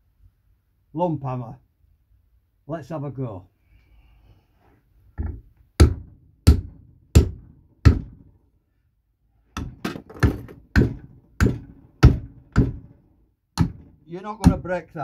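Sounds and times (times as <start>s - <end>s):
hammer striking plastic frame: 5.2s - 8.3s, 9.6s - 13.0s, 13.6s - 14.8s.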